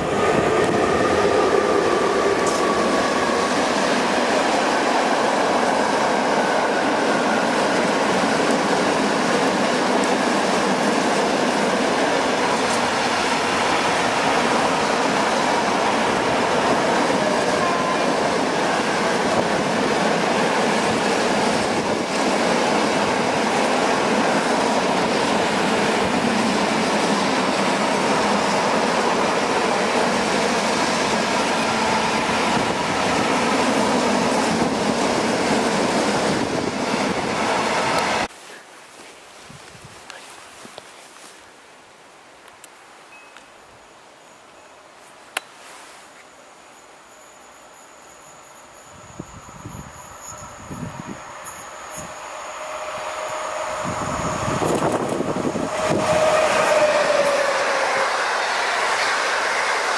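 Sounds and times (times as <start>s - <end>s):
freight train rolling past: 0.0s - 38.3s, 46.7s - 59.9s.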